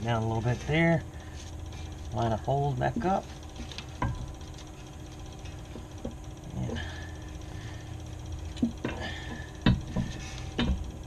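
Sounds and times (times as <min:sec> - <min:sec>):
low steady hum: 0:00.0 - 0:11.0
pry bar knocks and creaks: 0:08.6 - 0:10.8.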